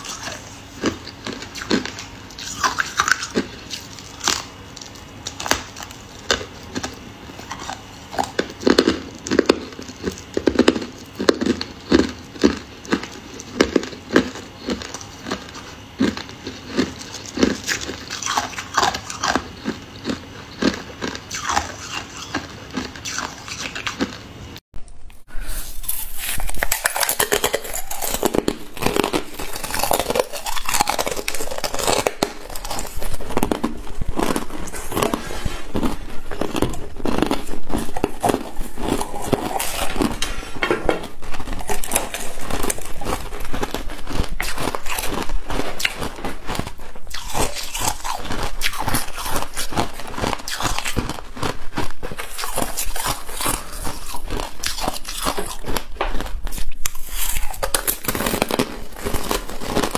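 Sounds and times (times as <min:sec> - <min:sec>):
ice being crunched between teeth: 0:00.0 - 0:24.2, 0:25.6 - 0:40.4, 0:41.0 - 0:59.9.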